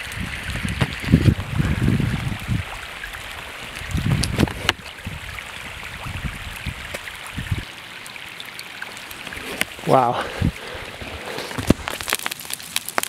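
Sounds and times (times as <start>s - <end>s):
low rumbling: 0.0s - 7.6s
hail pattering: 8.9s - 13.0s.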